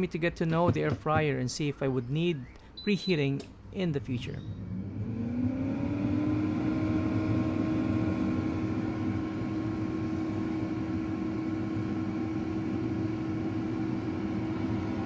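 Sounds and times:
air fryer fan whirring: 4.0s - 15.0s.

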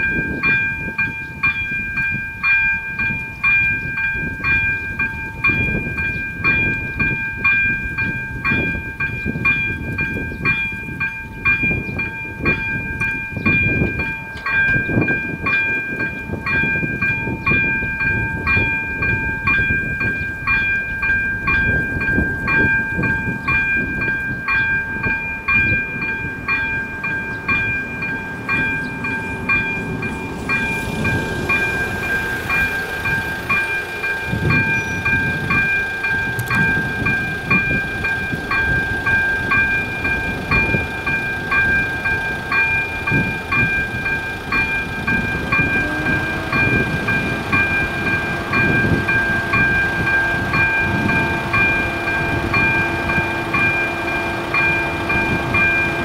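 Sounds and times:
level crossing warning bell ringing: 0.0s - 56.0s
low rumbling noise: 11.3s - 56.0s.

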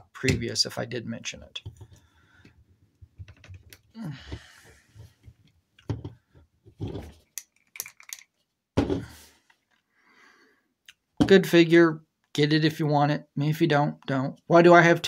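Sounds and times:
action figure joints clicking: 7.3s - 8.3s.

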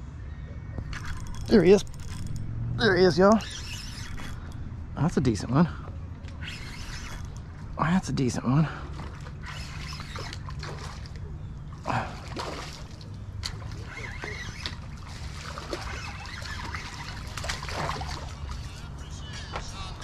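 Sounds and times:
fish splashing in water: 8.8s - 19.0s.

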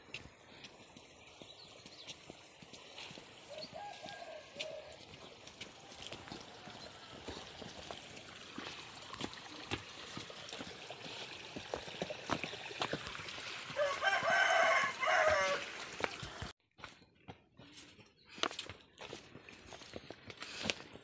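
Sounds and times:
footsteps on concrete: 0.0s - 21.0s
rooster crowing: 3.7s - 5.0s, 13.8s - 15.8s.

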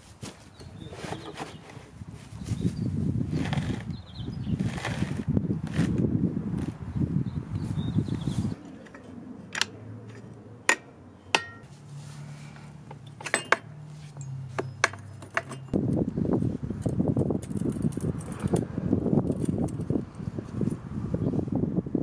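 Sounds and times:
metallic tool clinks: 13.0s - 15.8s.

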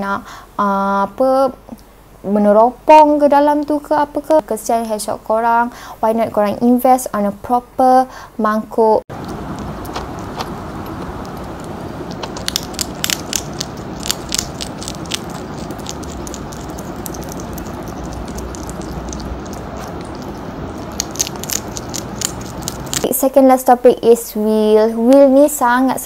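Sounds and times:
low background hiss: 0.0s - 26.0s
hedgehog crunching kibble: 9.1s - 23.2s.

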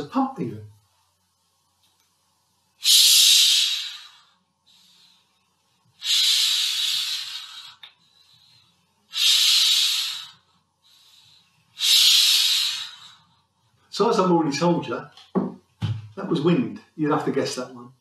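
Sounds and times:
bicycle pump hissing: 2.8s - 5.0s, 6.0s - 7.8s, 9.1s - 10.4s, 11.8s - 13.3s.

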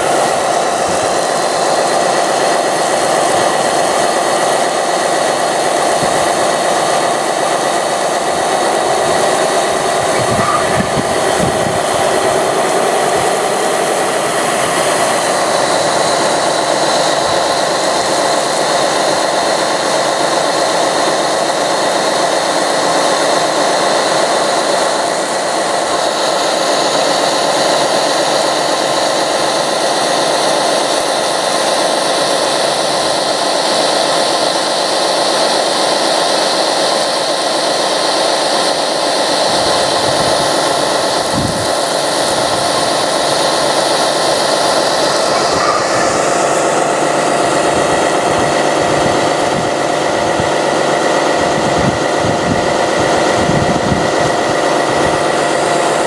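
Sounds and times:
loud even hiss: 0.0s - 56.0s
small electric motors whining: 38.2s - 56.0s.

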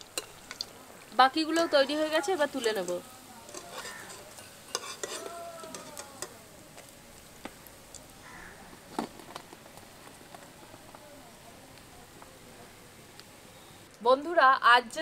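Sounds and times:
spatula clicking on a pan: 2.8s - 6.4s.

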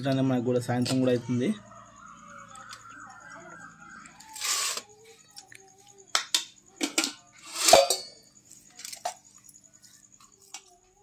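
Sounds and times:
steel dishes clinking and scraping: 6.8s - 9.2s.

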